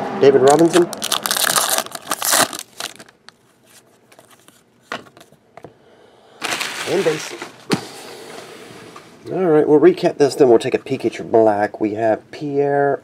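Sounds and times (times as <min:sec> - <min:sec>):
card pack wrapper crinkling: 0:00.4 - 0:04.6, 0:06.4 - 0:07.6.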